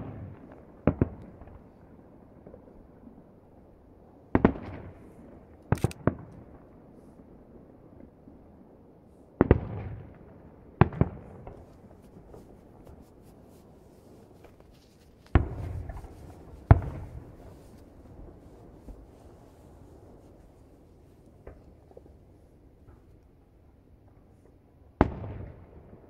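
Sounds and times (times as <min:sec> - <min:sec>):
firework shells bursting: 0:10.9 - 0:22.1.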